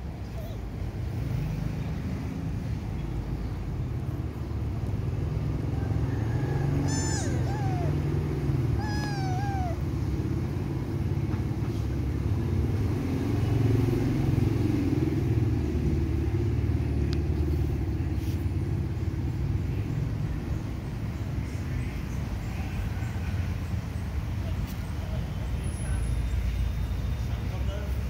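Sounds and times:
kitten meowing: 0:00.2 - 0:00.6, 0:06.8 - 0:08.1, 0:08.7 - 0:09.9.

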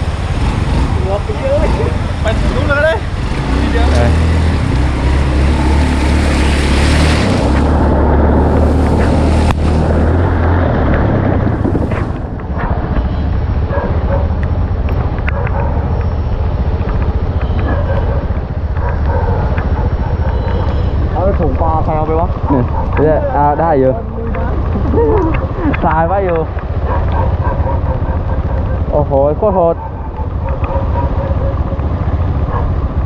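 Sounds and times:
engine running: 0:00.0 - 0:33.0
loud rushing noise: 0:01.9 - 0:14.1.

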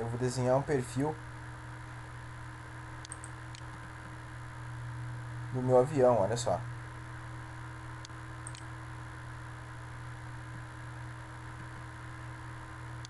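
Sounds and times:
electrical hum and hiss: 0:00.0 - 0:13.0
faint short clicks: 0:03.0 - 0:03.8, 0:08.0 - 0:08.7.

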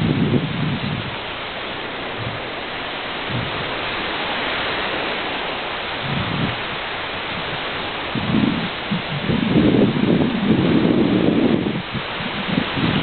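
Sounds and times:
wind gusts buffeting: 0:00.0 - 0:13.0
wind rushing over microphone: 0:00.0 - 0:13.0.

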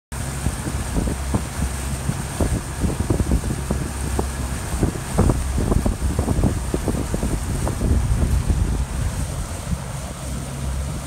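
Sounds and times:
outboard motor humming: 0:00.1 - 0:11.0
wind noise: 0:00.3 - 0:11.0.

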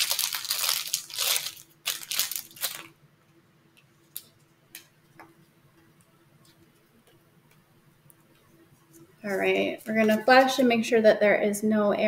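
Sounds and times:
plastic packaging crinkling and tearing: 0:00.0 - 0:03.0.

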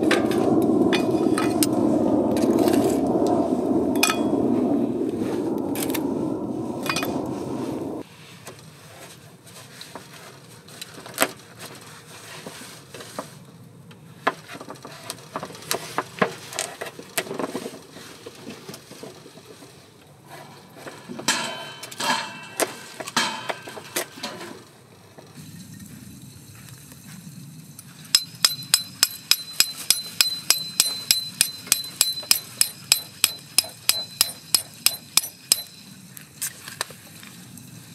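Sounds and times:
low rushing noise: 0:00.0 - 0:08.0.

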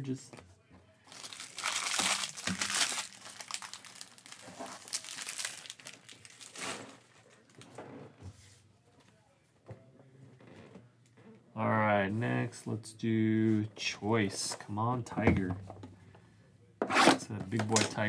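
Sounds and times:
wrapper being crumpled: 0:01.1 - 0:07.1.

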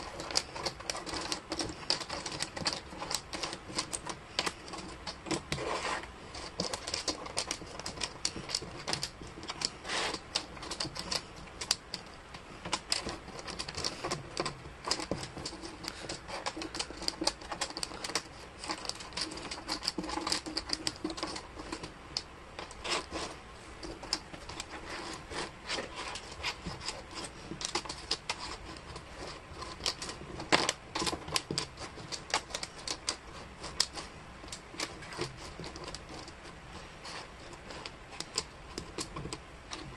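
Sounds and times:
wooden puzzle pieces clicking on table: 0:06.3 - 0:36.4.

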